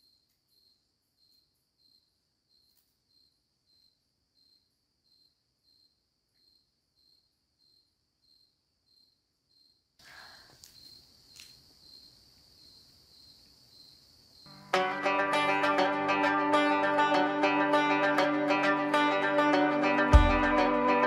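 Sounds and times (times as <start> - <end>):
cricket chirping: 0.0 - 14.8.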